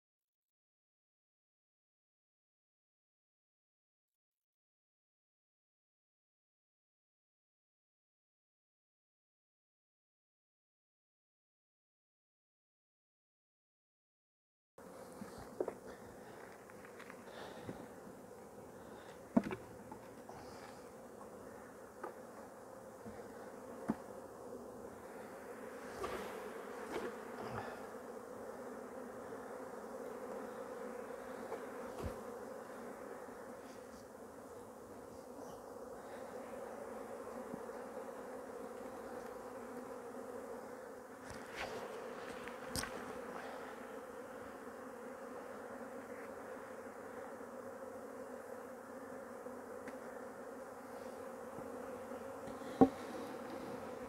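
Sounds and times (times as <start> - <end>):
honey bees buzzing: 14.8 - 54.0
wooden hive boxes knocking: 19.3 - 20.2, 23.0 - 24.2, 26.0 - 27.7, 52.4 - 53.2.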